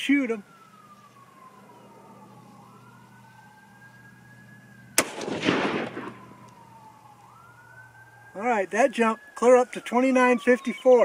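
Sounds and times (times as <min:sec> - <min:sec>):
distant siren wailing: 0:00.0 - 0:11.0
rifle shot echoing: 0:05.0 - 0:06.6.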